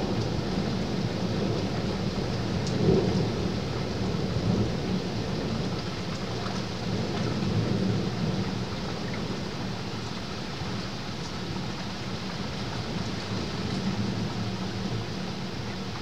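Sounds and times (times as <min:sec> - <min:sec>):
distant thunder rumble: 0:00.0 - 0:09.7.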